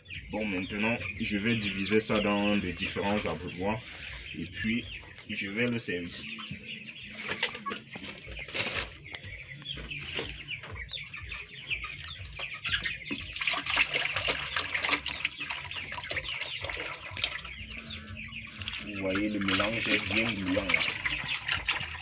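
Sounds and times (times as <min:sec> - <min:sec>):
chickens clucking: 0:00.0 - 0:22.0
liquid pouring into buckets: 0:13.1 - 0:22.0.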